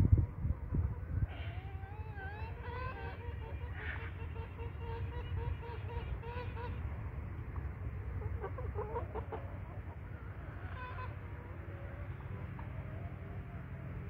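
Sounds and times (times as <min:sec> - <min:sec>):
low steady rumble: 0:00.0 - 0:14.0
chicken clucking: 0:00.4 - 0:06.8, 0:08.1 - 0:13.9.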